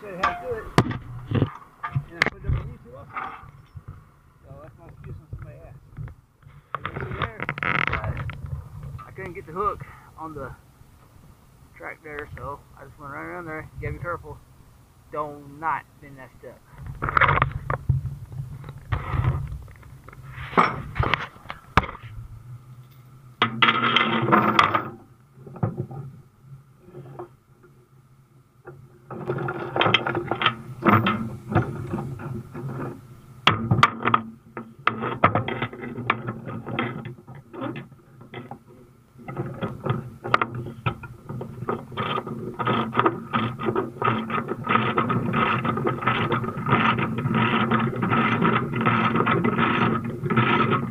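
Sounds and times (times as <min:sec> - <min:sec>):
steel chain clanking and rattling: 0:00.0 - 0:02.2, 0:02.9 - 0:04.0, 0:22.8 - 0:26.1, 0:29.1 - 0:50.9
faint steady hum: 0:00.0 - 0:50.9.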